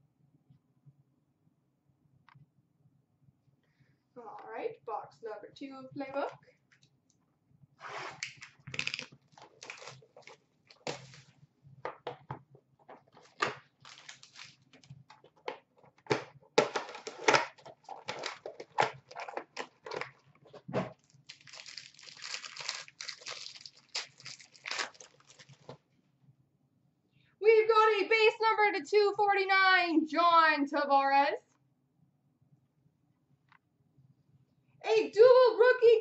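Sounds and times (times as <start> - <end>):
plastic wrap crinkling: 8.2 - 11.4, 13.0 - 15.4, 16.8 - 25.8.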